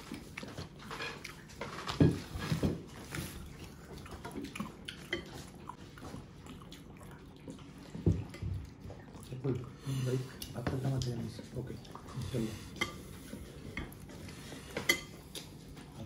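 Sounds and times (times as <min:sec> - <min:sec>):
wet chewing and mouth smacking: 0:00.0 - 0:01.9, 0:03.4 - 0:12.2
plates and utensils clicking: 0:14.7 - 0:15.5.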